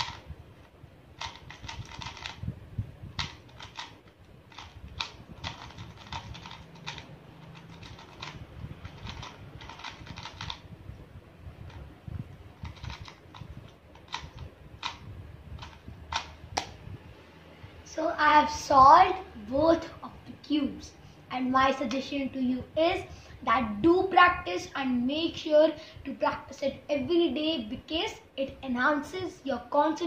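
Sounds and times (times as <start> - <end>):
puzzle cube clicking: 0.0 - 0.2, 1.2 - 2.4, 3.1 - 10.6, 12.6 - 15.0, 15.6 - 16.8.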